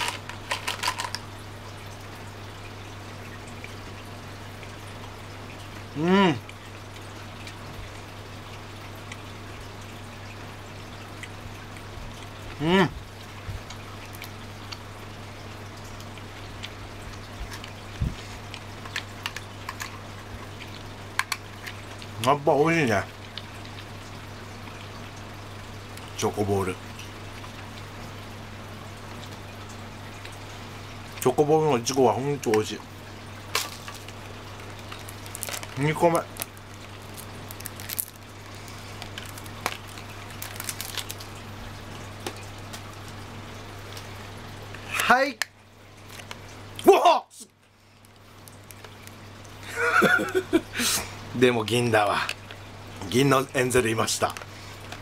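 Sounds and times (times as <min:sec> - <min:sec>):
low electrical hum: 0:00.0 - 0:55.0
crunchy chewing: 0:33.6 - 0:41.3.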